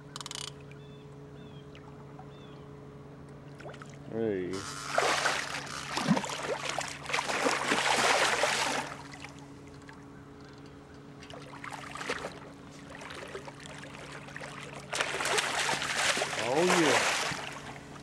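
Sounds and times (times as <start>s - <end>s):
steady low hum: 0.0s - 18.0s
fish thrashing water: 4.6s - 9.4s, 11.2s - 17.8s.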